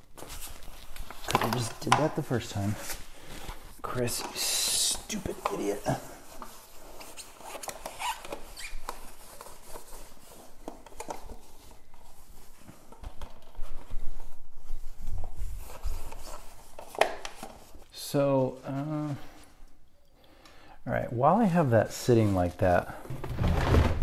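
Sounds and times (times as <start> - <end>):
paper towel rustling: 0.0 - 19.8
plastic cup shifted: 22.9 - 24.0.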